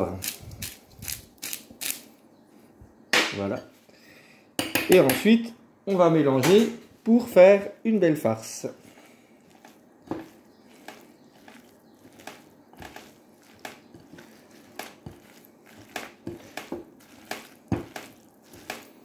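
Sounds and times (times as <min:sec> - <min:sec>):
hands squishing minced meat: 0:08.3 - 0:19.0.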